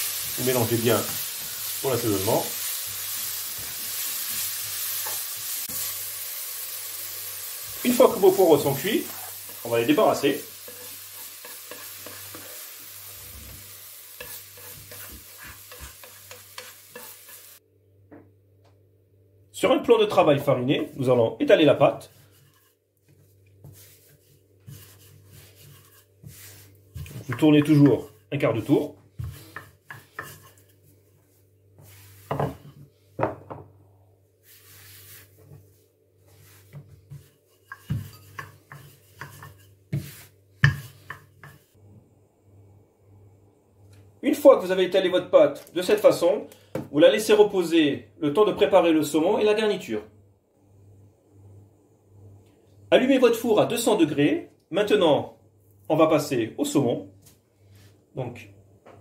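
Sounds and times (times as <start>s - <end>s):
pan sizzling: 0.0s - 17.6s, 20.8s - 32.8s, 34.4s - 41.8s
spatula scraping frying pan: 7.4s - 17.6s, 22.0s - 30.9s, 36.3s - 41.8s
rolling pin rubbing over dough: 21.8s - 32.8s, 34.4s - 41.7s.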